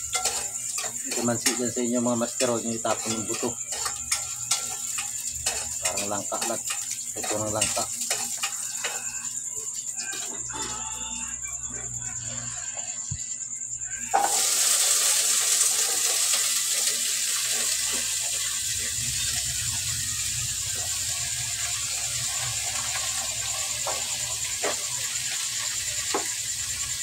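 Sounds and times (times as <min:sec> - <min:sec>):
high hiss: 0:13.3 - 0:27.0.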